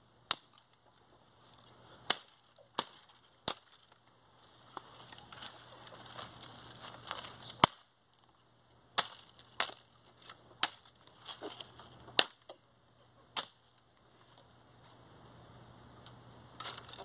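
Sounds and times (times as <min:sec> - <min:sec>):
machete chopping into brush: 0:02.1 - 0:03.9, 0:07.0 - 0:07.9, 0:09.0 - 0:12.5
dry brush rustling: 0:02.8 - 0:08.3, 0:11.0 - 0:12.1.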